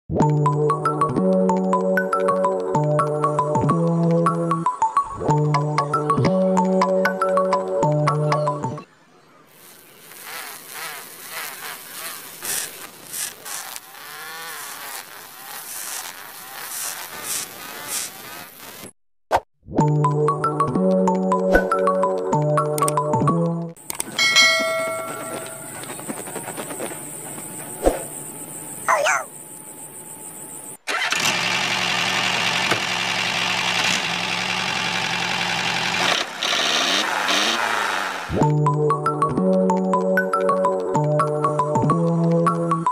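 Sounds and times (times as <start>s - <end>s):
model tractor mechanical drone: 9.4s - 18.9s, 29.7s - 38.4s
small electric motor whining: 9.5s - 19.0s
blade grinding on sanding disc: 9.6s - 18.9s, 24.5s - 27.7s.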